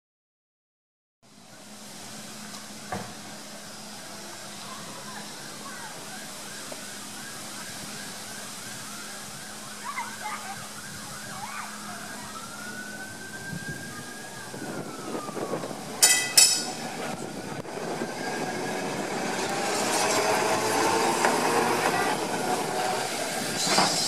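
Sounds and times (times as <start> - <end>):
tram wheels rumbling on rails: 12.9 - 24.0
tram gong ringing: 15.9 - 23.3.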